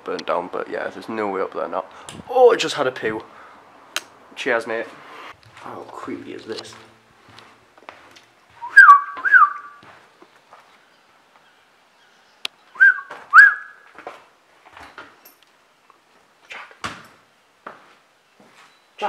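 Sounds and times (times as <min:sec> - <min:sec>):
footsteps crunching over debris: 0:04.7 - 0:11.5, 0:13.1 - 0:15.2
person whistling a call: 0:08.6 - 0:09.8, 0:12.8 - 0:13.8.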